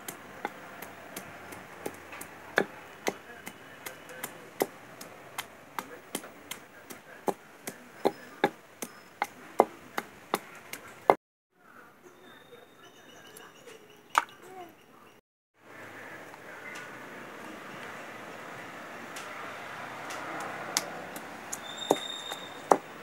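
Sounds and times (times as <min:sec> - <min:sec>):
pestle pounding in wooden mortar: 0:00.0 - 0:10.8, 0:21.1 - 0:23.0.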